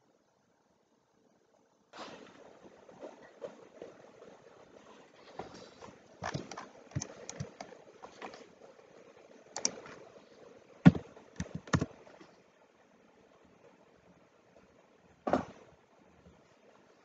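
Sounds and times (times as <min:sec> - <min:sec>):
mouse and keyboard clicks: 0:06.2 - 0:08.4, 0:09.6 - 0:10.0, 0:11.4 - 0:12.0.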